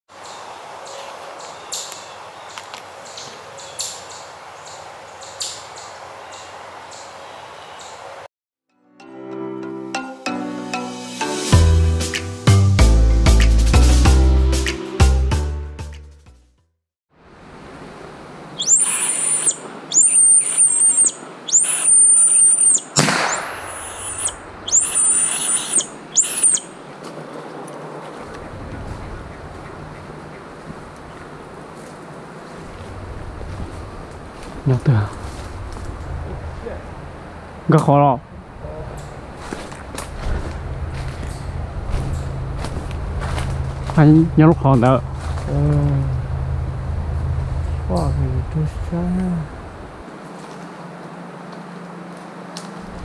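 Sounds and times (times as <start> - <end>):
small animal squealing: 18.6 - 23.0, 23.6 - 26.7
short high chirps: 18.6 - 26.7.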